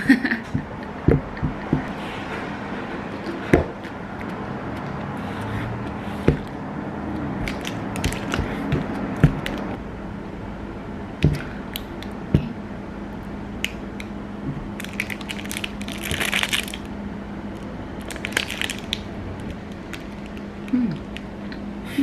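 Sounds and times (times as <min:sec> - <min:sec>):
plastic wrapper crinkling: 0:14.8 - 0:16.9, 0:18.0 - 0:21.3.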